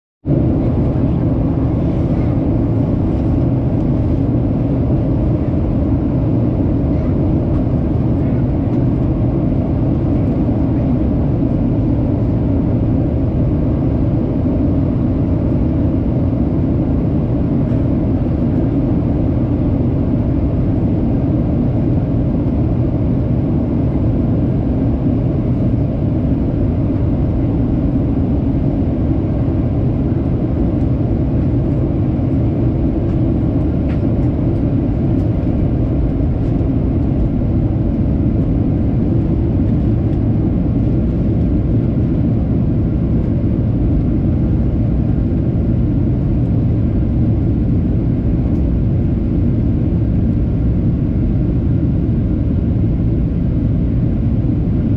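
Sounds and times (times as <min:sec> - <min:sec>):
jet cabin engine rumble: 0:00.2 - 0:54.9.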